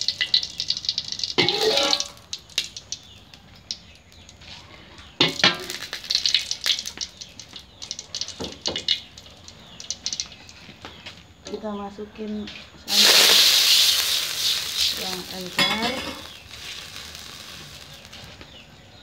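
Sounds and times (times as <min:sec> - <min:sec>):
spice paste frying in oil: 0:00.0 - 0:11.3, 0:12.9 - 0:19.0
metal spatula scraping wok: 0:01.4 - 0:02.2, 0:12.9 - 0:18.4.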